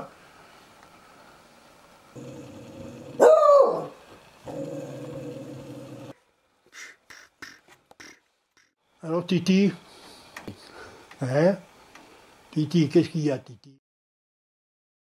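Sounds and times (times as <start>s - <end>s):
dog growling: 2.2s - 6.1s
dog barking: 3.2s - 4.0s.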